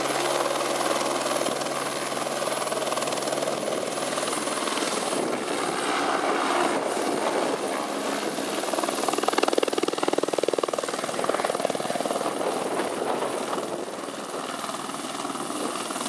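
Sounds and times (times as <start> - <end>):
helicopter rotor chop: 0.0 - 16.0.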